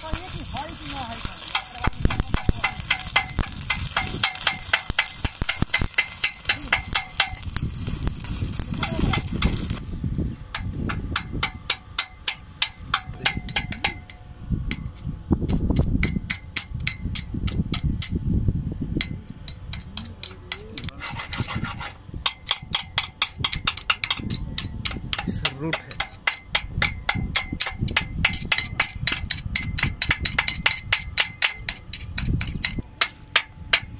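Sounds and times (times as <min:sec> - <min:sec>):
welding hiss: 0:00.0 - 0:10.2
welding arc crackling: 0:00.0 - 0:10.3, 0:19.0 - 0:33.9.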